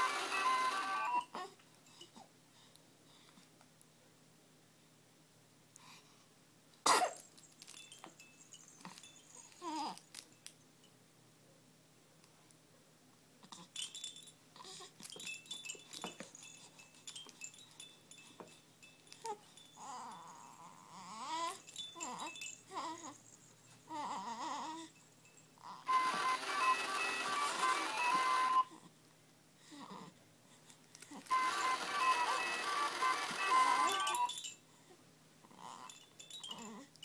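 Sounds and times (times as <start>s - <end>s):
dangling toys jingling and chiming: 7.2s - 10.5s, 13.6s - 28.6s, 31.2s - 34.6s, 35.6s - 37.0s.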